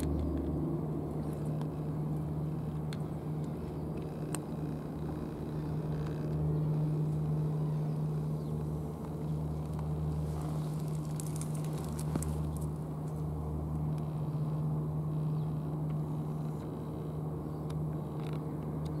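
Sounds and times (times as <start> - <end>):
engine idling drone: 0.0 - 19.0
faint ticks and crackles: 8.5 - 14.1.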